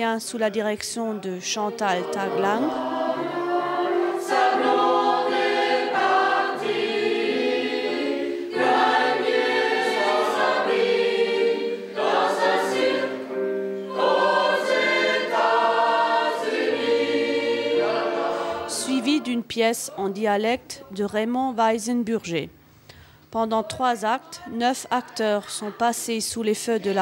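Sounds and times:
mixed choir singing: 0:01.7 - 0:19.5
singers breathing: 0:08.2 - 0:08.6, 0:22.7 - 0:23.3.

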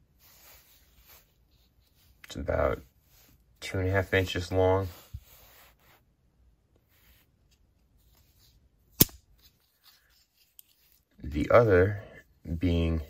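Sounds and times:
faint rustling of tool: 0:06.7 - 0:12.8.

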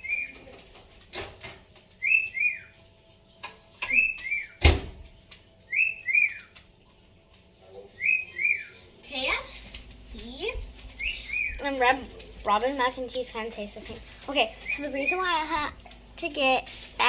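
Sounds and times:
bird chirping: 0:00.0 - 0:00.6, 0:01.9 - 0:06.9, 0:07.7 - 0:08.9, 0:10.9 - 0:11.7.

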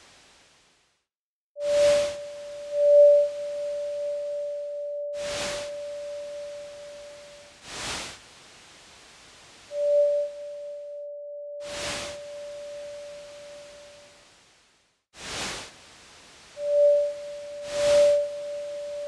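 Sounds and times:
electronic sine tone: 0:01.6 - 0:07.6, 0:09.7 - 0:14.1, 0:16.6 - 0:19.0
noise swishes: 0:01.6 - 0:08.2, 0:11.6 - 0:13.9, 0:15.2 - 0:15.8, 0:16.4 - 0:19.0.

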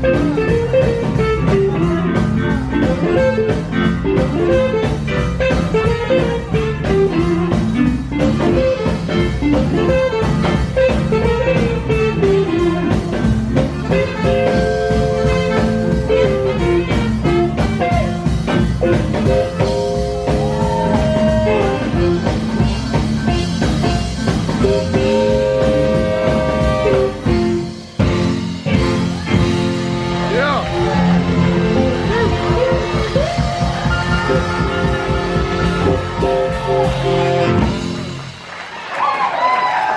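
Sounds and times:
electric guitar: 0:00.0 - 0:38.6
electric keyboard piano: 0:00.0 - 0:38.6
upright bass: 0:00.0 - 0:38.6
drum kit: 0:00.0 - 0:39.9.

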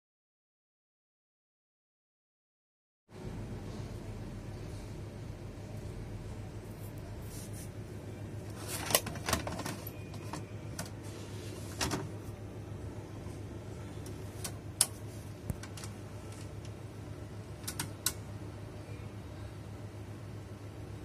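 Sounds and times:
steady low hum: 0:03.1 - 0:21.0
tape loading mechanism clicks: 0:17.6 - 0:18.2.

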